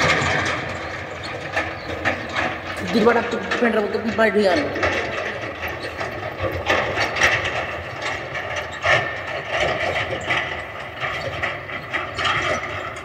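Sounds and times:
constant hum: 0.0 - 13.0
irregular clanks: 0.0 - 13.0
machine clattering and rattling: 0.0 - 13.0.

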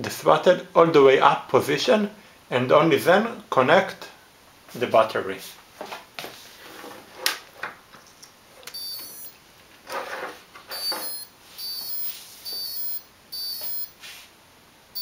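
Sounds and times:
speed controller beeping through motor: 8.7 - 9.4, 10.7 - 14.0.

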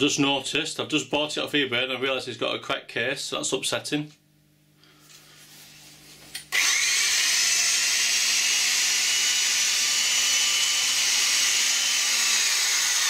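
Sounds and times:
electric drill motor running: 6.5 - 13.0.

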